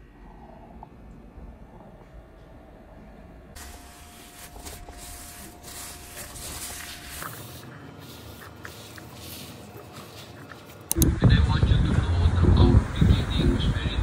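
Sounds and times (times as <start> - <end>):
tissue rubbing on a tablecloth: 3.6 - 10.9.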